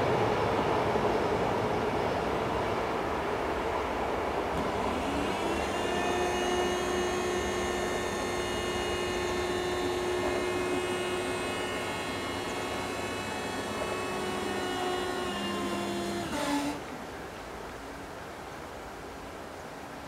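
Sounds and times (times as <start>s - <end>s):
barrier motor electric hum: 4.5s - 17.1s.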